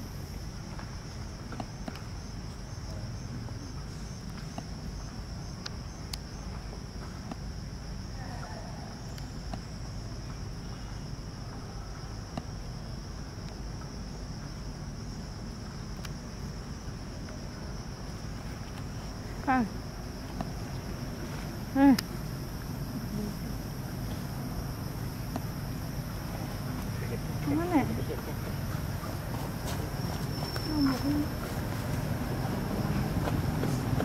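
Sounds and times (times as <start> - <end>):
insects droning: 0.0 - 34.0.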